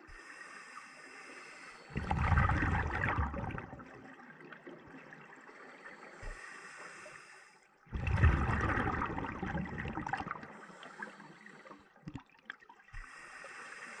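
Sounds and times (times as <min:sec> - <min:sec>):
water sounds: 0:00.0 - 0:14.0
scuba regulator breathing hiss: 0:00.1 - 0:02.0, 0:05.9 - 0:07.6, 0:10.6 - 0:11.8, 0:13.0 - 0:14.0
exhaled bubbles rushing: 0:01.9 - 0:05.3, 0:07.9 - 0:10.6.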